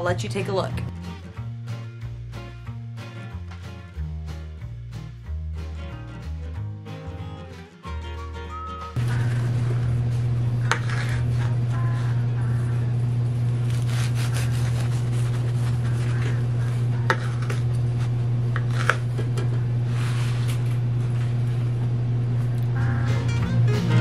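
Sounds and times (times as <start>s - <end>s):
steady low hum: 9.0s - 24.0s
bread knife sawing through loaf: 10.6s - 11.6s, 13.6s - 17.7s.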